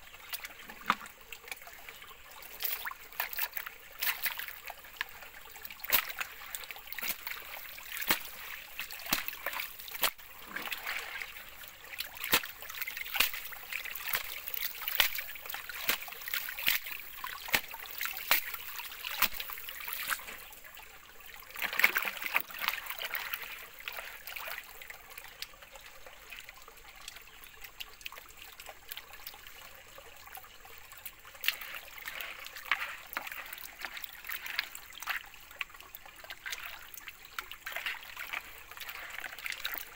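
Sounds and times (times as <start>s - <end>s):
water splashing and sloshing: 0.0s - 39.9s
stones clicking in a pan: 8.0s - 10.2s, 12.3s - 20.2s.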